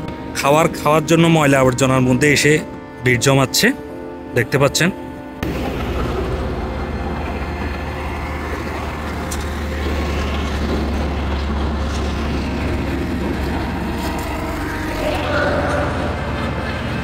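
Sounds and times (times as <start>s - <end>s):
highway traffic rumble: 0.0s - 17.0s
low hum: 5.0s - 17.0s.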